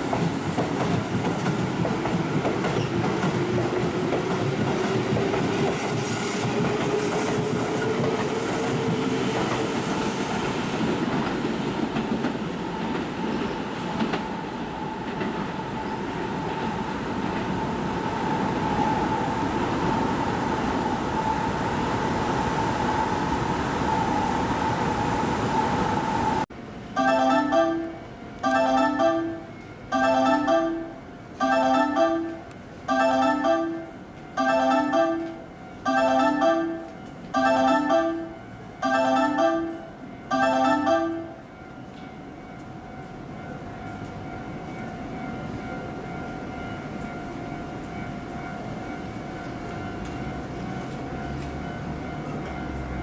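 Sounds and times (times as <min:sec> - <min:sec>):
approaching train rumble: 0:00.0 - 0:26.9, 0:41.6 - 0:53.0.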